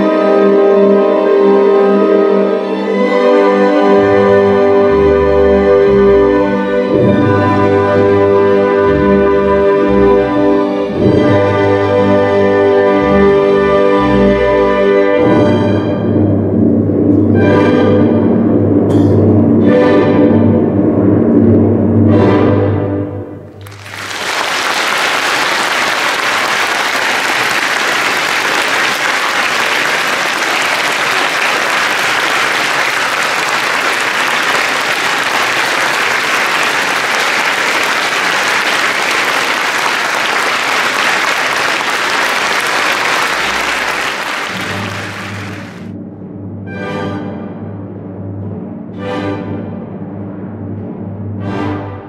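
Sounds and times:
orchestral music: 0.0 - 52.0
audience applauding: 23.6 - 45.9.

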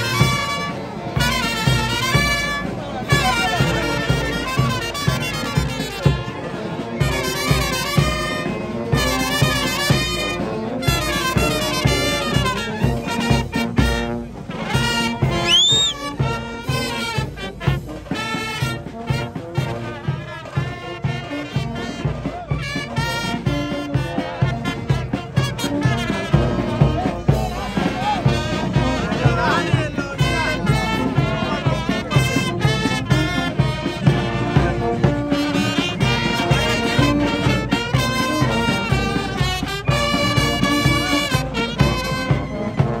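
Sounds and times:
brass band playing a march: 0.0 - 43.0
rising whistle: 15.4 - 16.1.

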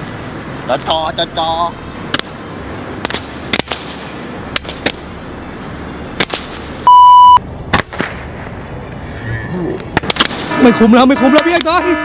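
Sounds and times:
electronic censor bleep: 6.8 - 7.4.

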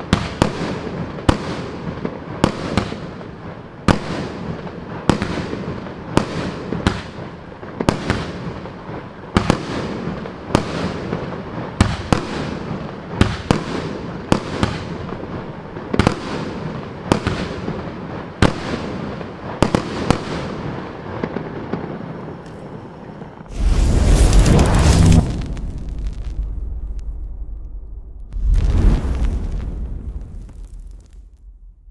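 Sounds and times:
fireworks bangs: 0.0 - 31.9
fireworks hissing tail: 23.0 - 31.9.

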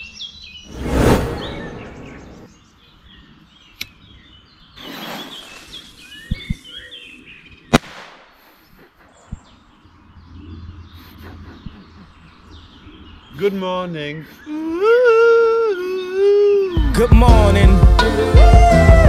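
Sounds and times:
small birds chirping: 0.0 - 17.2
rushing noise: 0.7 - 2.5.

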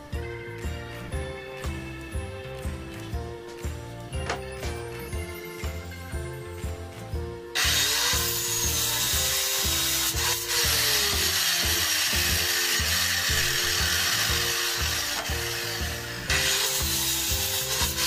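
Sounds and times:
background music with steady beat: 0.0 - 18.0
circular saw cutting wood: 7.6 - 18.0.

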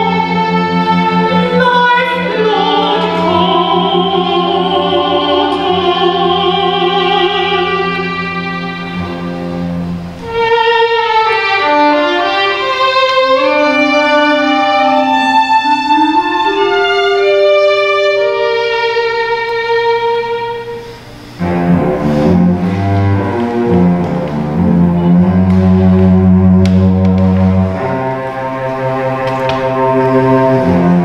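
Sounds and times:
cello low bowed notes: 0.0 - 31.0
violin clarinet and cello playing: 0.0 - 31.0.

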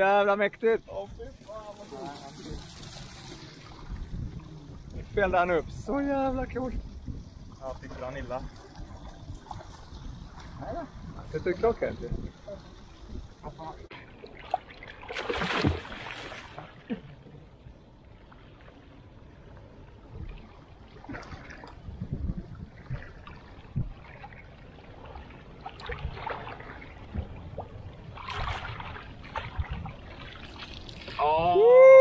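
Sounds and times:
water splashing against boat hull: 13.9 - 17.0, 20.2 - 31.3
fish thrashing at the surface: 14.4 - 16.7.

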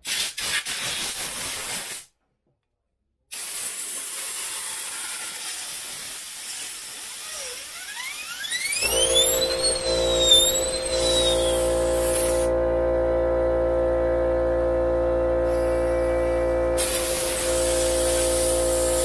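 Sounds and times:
compressed air hissing: 3.3 - 12.5, 16.8 - 19.0.

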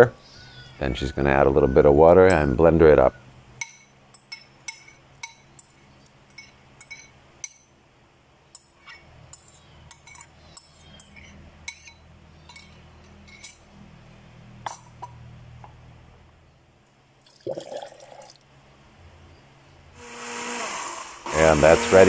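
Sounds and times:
spoon and bowl clinking on glass: 3.6 - 7.7, 8.6 - 13.7.

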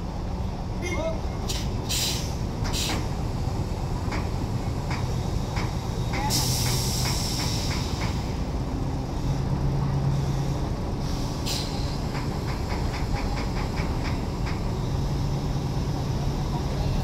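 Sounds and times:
diesel engines droning: 0.0 - 17.0
air release hiss: 1.5 - 3.1, 6.2 - 8.4, 11.0 - 12.2.

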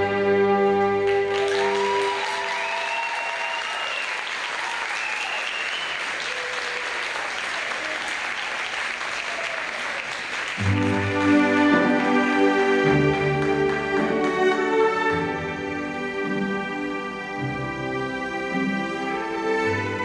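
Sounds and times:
audience applauding: 1.0 - 15.1
high cheering calls: 1.3 - 10.3.

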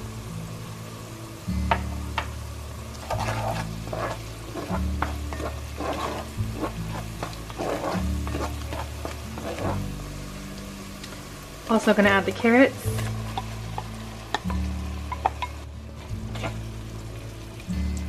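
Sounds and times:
background music with bass line: 0.0 - 18.0
garlic and onion sizzling in butter: 0.0 - 18.0
wooden spoon scraping a pot: 3.0 - 9.9, 12.8 - 13.9, 16.1 - 16.6.

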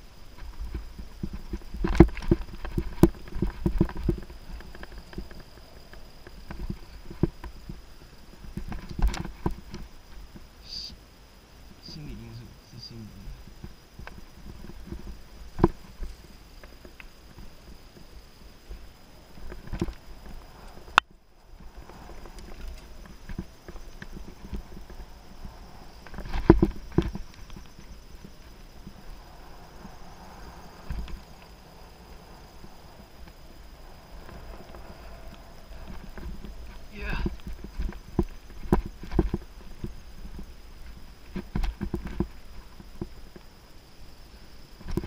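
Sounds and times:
bike tyre rumble on dirt: 0.0 - 12.3, 13.2 - 45.0
bike knocks and rattles: 0.4 - 7.8.

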